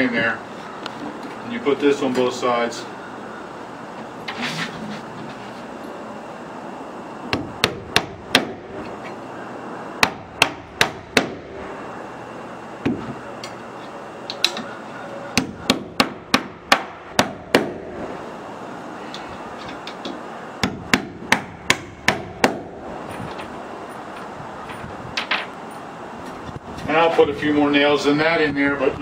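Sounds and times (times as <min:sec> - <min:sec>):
hammer striking nails into metal: 0:07.3 - 0:08.6, 0:10.0 - 0:11.4, 0:20.6 - 0:22.6.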